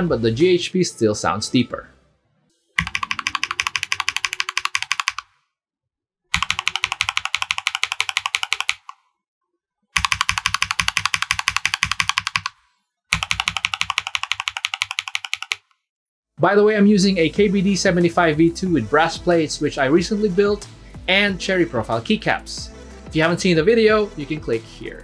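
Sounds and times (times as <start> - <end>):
fast mechanical keyboard typing: 2.8 - 5.3, 6.4 - 9.0, 10.0 - 15.6.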